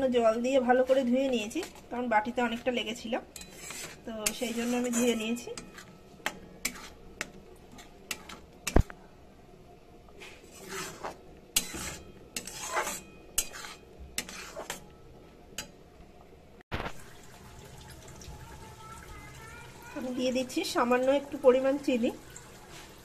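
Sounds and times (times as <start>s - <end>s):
spatula scraping metal pan: 2.5s - 8.8s, 10.2s - 15.0s.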